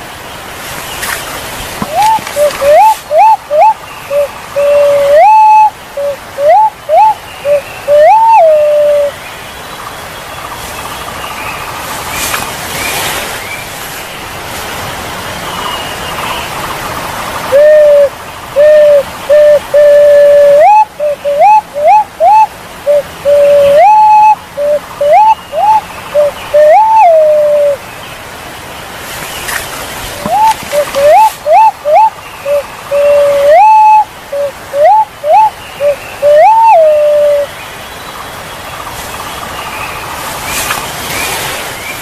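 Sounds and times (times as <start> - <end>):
steady hiss: 0.0 - 42.0
pigeon whistling calls: 1.8 - 9.2, 17.5 - 27.8, 30.2 - 37.5.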